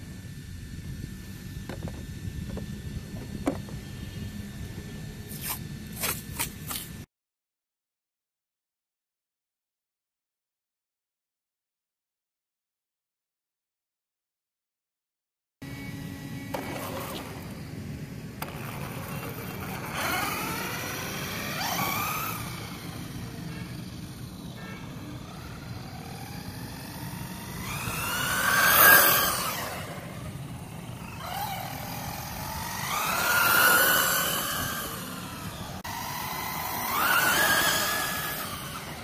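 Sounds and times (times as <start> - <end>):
toy car electric motor whining: 15.6 - 39.0.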